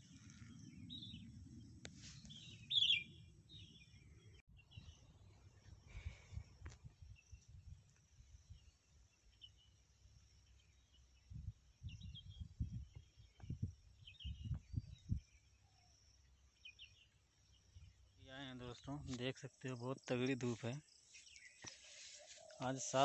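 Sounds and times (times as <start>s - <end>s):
bird chirps: 2.1s - 6.2s, 8.3s - 23.0s
low rumbling on microphone: 11.2s - 15.4s.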